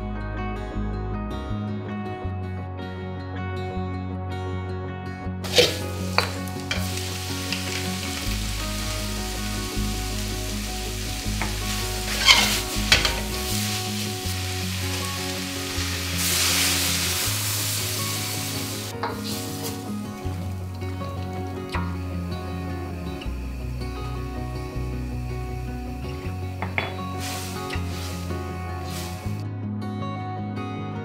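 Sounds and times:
food sizzling in a wok: 0:05.4 - 0:29.4
spatula scraping a wok: 0:05.5 - 0:20.0, 0:26.6 - 0:29.4.

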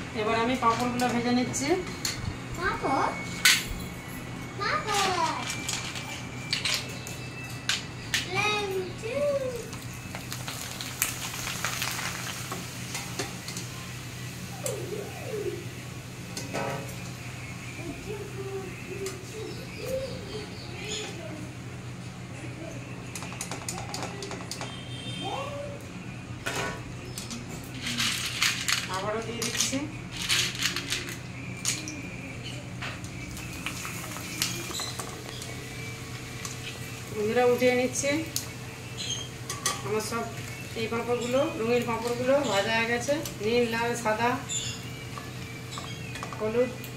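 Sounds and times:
papad sizzling in hot oil: 0:09.0 - 0:19.6, 0:33.0 - 0:46.9.

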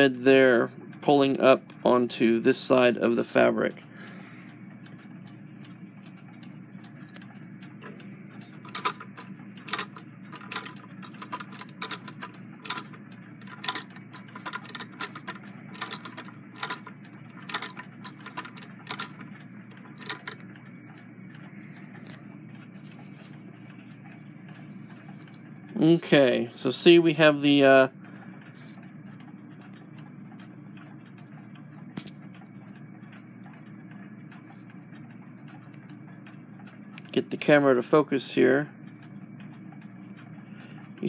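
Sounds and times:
sewing machine clicking: 0:07.2 - 0:20.6
sewing machine hum: 0:08.6 - 0:20.4.

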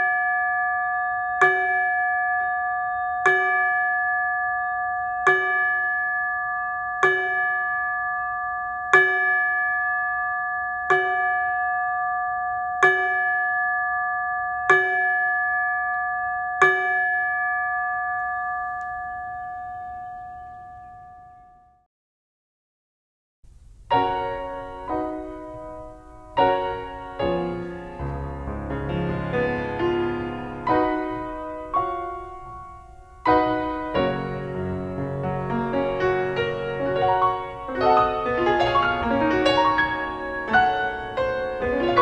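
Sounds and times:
chime struck with mallet: 0:00.0 - 0:21.6.

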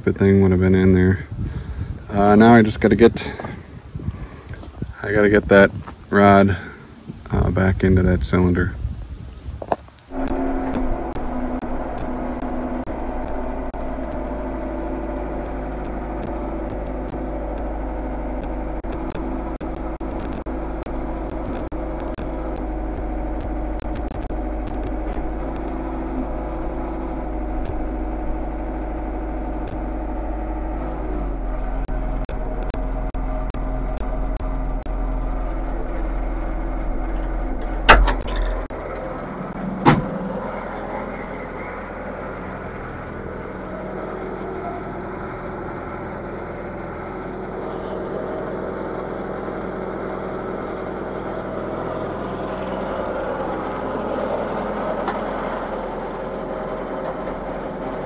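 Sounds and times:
telehandler engine running: 0:02.0 - 0:03.7, 0:10.1 - 0:58.0
loud knocks: 0:39.8 - 0:40.2.

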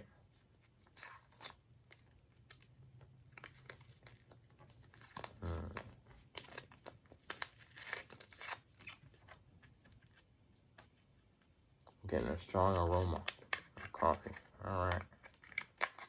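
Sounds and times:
plastic sachet tearing and crinkling: 0:00.8 - 0:09.3.

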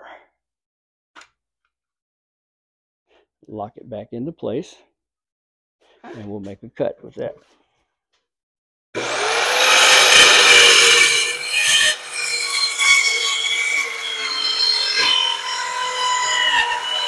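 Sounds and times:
circular saw cutting wood: 0:09.0 - 0:17.0.

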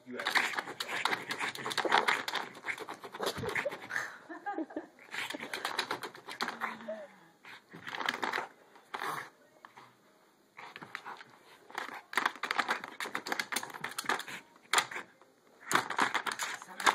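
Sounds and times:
plastic toy ball clattering: 0:15.7 - 0:16.9.

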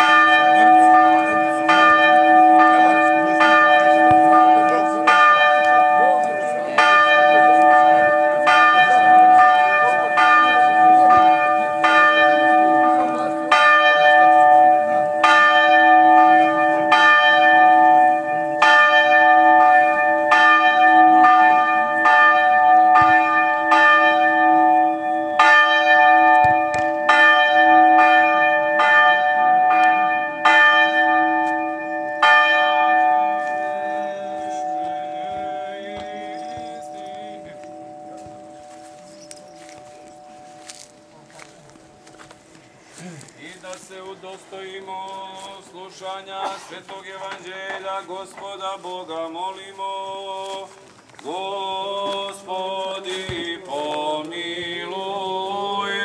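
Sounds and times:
church bell tolling: 0:00.0 - 0:42.0.

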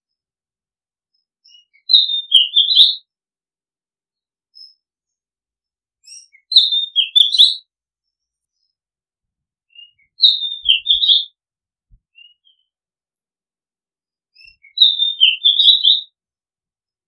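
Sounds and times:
bird singing whistled phrases: 0:01.1 - 0:03.1, 0:06.0 - 0:07.7, 0:09.7 - 0:11.4, 0:14.3 - 0:16.2.

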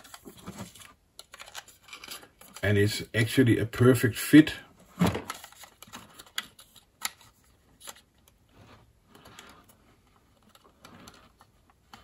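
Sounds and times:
plastic parts clicking: 0:00.0 - 0:02.6, 0:05.1 - 0:08.4.

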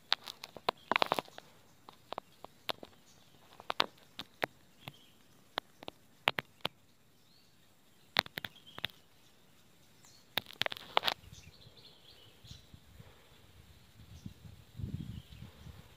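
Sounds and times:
sharp clicks and snaps: 0:00.0 - 0:06.8, 0:08.1 - 0:09.1, 0:10.3 - 0:11.3
faint high bird chirps: 0:00.2 - 0:15.9.

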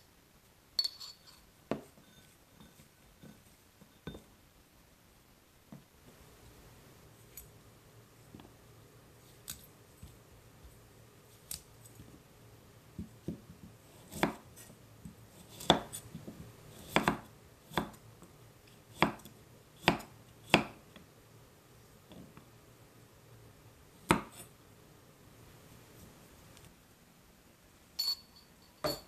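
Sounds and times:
knife chopping on wooden board: 0:13.0 - 0:14.7, 0:15.4 - 0:18.0, 0:18.9 - 0:20.8, 0:24.0 - 0:24.5.

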